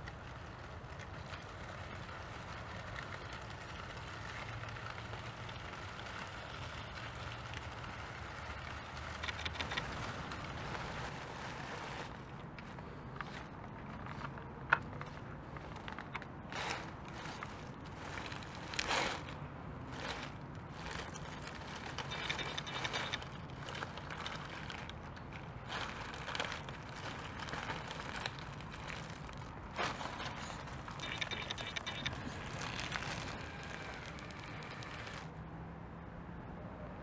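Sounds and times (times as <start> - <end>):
leaves crackling under tyres: 0.0 - 35.4
toy car motor whine: 31.0 - 35.3.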